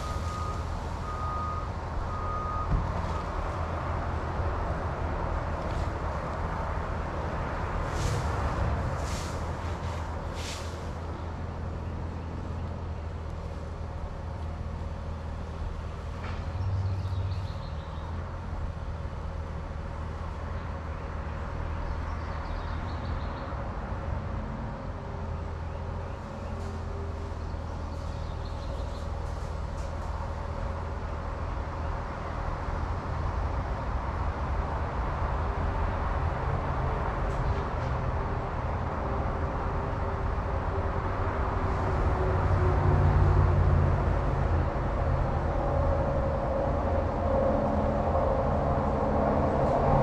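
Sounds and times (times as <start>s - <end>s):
diesel engine running: 0.0s - 21.3s.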